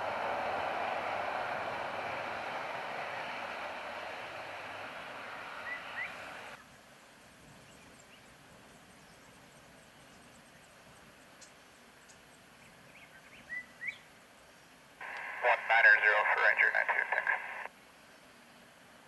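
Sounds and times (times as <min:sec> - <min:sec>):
turboprop engines roaring: 0:00.0 - 0:06.6, 0:15.0 - 0:17.7.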